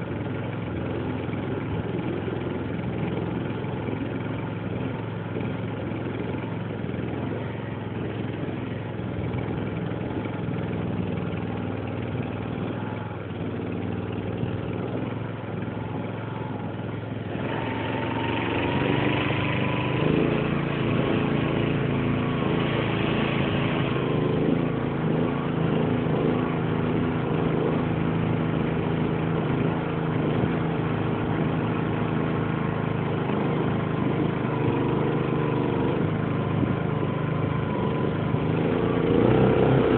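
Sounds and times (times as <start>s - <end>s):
small boat motor revving: 0.0s - 39.9s.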